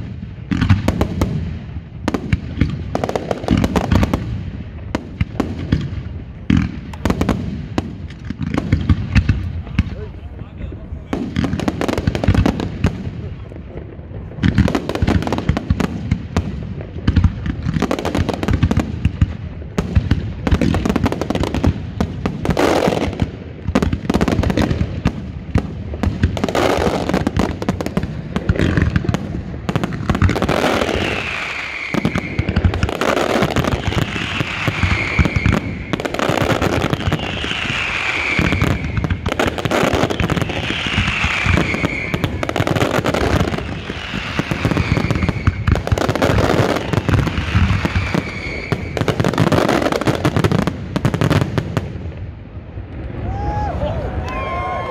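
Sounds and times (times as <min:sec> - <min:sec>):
fireworks launches and bursts: 0:00.0 - 0:54.9
falling firework whistle: 0:30.3 - 0:50.5, 0:53.1 - 0:54.9.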